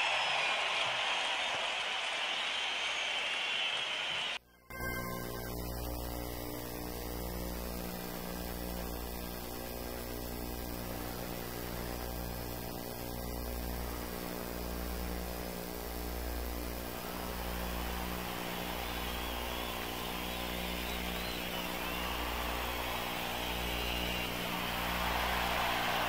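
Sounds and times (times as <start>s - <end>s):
arena crowd noise: 0.0s - 4.4s, 16.9s - 26.0s
electrical mains hum: 4.7s - 26.0s.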